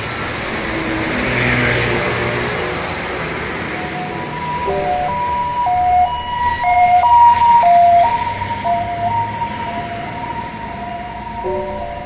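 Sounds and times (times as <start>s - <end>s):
low traffic rumble: 0.0s - 12.0s
slow synth melody: 4.3s - 10.0s, 10.8s - 12.0s.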